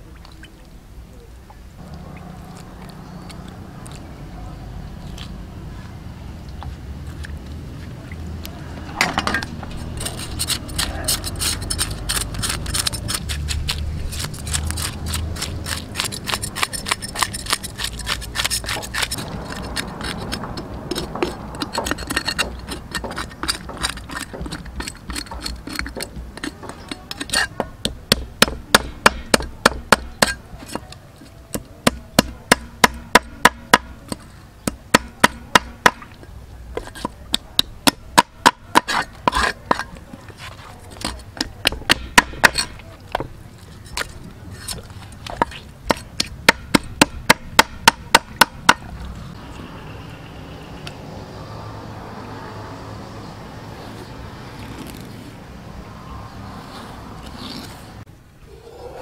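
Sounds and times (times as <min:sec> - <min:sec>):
cleaver scraping fish scales: 0:08.7 - 0:27.6, 0:36.8 - 0:37.4, 0:38.6 - 0:41.7, 0:42.4 - 0:46.4, 0:53.8 - 0:55.4, 0:56.4 - 0:58.1.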